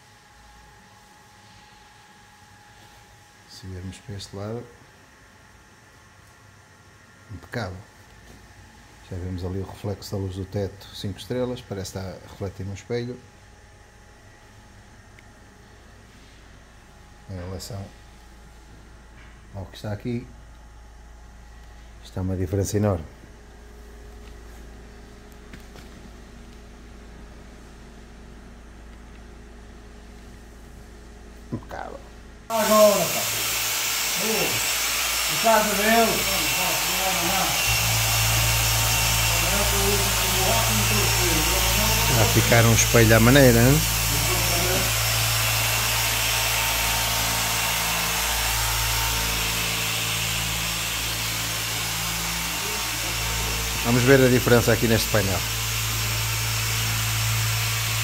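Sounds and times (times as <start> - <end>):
low machine hum: 0.0 - 58.0
electric car polisher running: 32.5 - 58.0.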